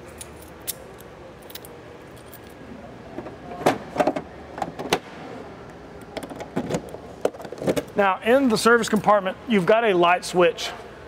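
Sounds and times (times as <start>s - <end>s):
keys jangling: 0.0s - 2.6s.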